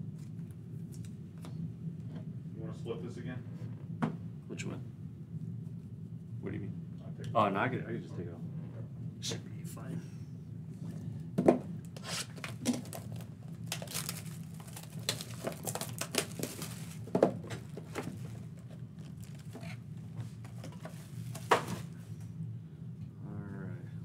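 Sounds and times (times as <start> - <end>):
plastic wrap crinkling: 12.0 - 19.8.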